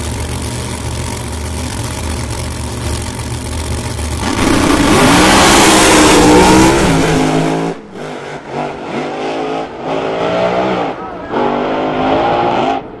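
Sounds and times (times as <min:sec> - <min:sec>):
drag cars launching at full throttle: 0:03.8 - 0:13.0
distant engine upshifting: 0:04.2 - 0:13.0.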